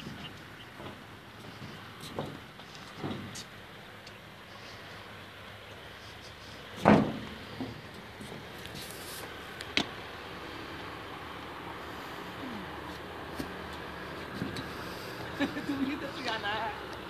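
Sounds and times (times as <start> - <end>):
footfalls on wooden sleepers: 0.0 - 3.6, 6.8 - 9.0.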